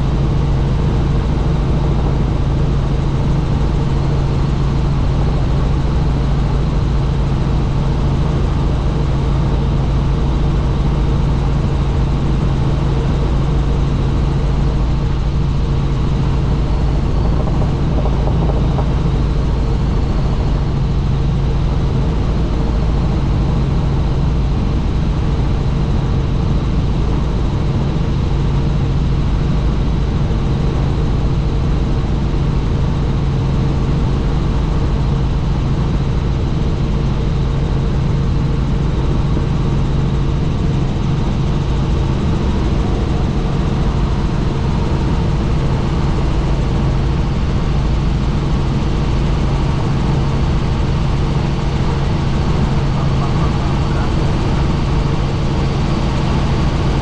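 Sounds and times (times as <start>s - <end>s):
helicopter droning in flight: 0.0s - 57.0s.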